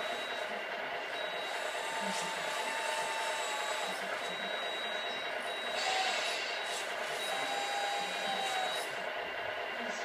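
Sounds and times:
small electric motors whining: 1.2 - 9.1.

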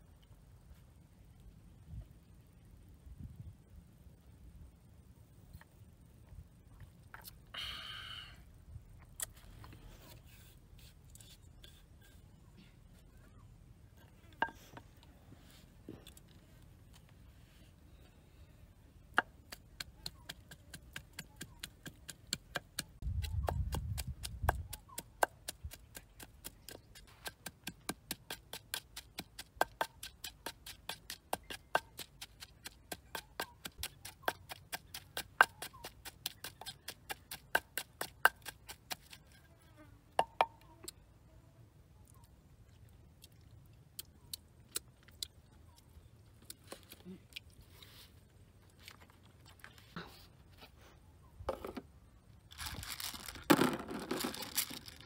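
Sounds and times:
pestle pounding in mortar: 19.2 - 39.2.

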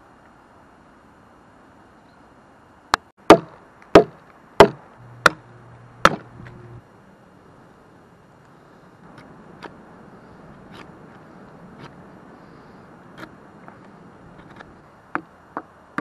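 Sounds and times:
hatchet chopping wood: 3.2 - 5.4, 6.0 - 6.3.

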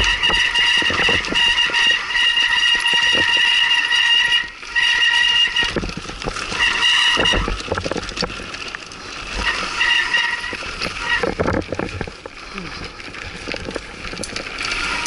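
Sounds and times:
bike brakes squealing: 0.0 - 5.8, 6.5 - 7.6, 9.4 - 11.3
bike rattling over rough ground: 0.0 - 15.0.

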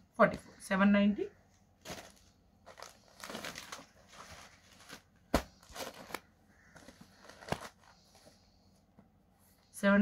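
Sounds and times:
fabric rustling: 1.6 - 8.4.

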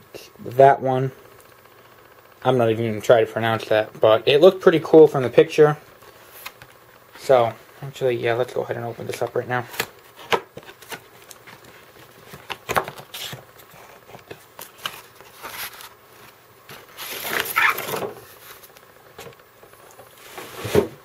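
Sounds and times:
packed insert sliding out of box: 16.7 - 18.2.

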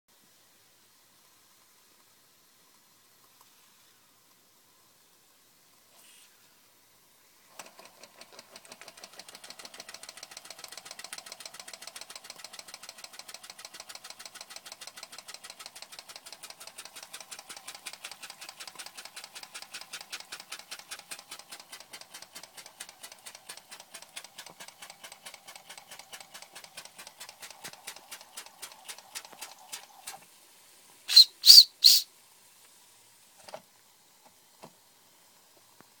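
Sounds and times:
toy steam engine chuffing: 7.5 - 30.2, 31.1 - 32.0
shrill whistle toots: 31.1 - 32.1.

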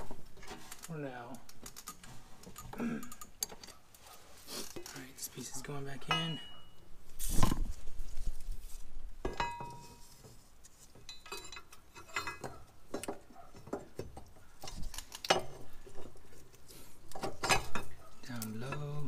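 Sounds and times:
metallic clinks and knocks: 6.0 - 6.8, 9.2 - 10.2, 10.9 - 16.2, 17.1 - 19.0.

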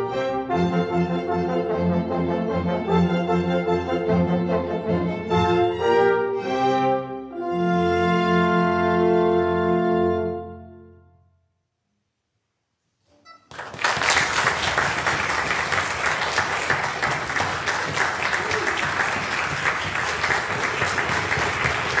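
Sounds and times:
audience applause: 13.5 - 22.0.

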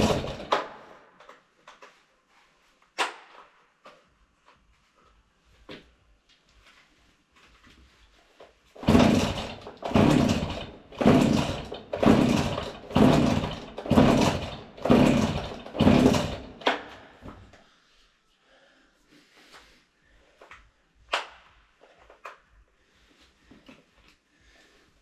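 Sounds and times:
chainsaw recoil starter pulls: 0.0 - 0.8, 8.8 - 17.0.

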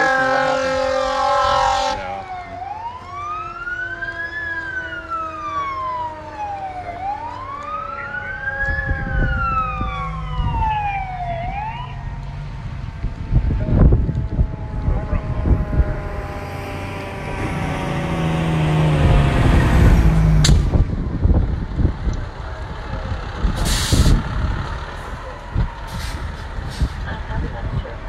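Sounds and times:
steady horn tone: 0.0 - 2.4, 13.2 - 20.2
siren wailing: 0.0 - 21.4
low rumble: 8.5 - 28.0.

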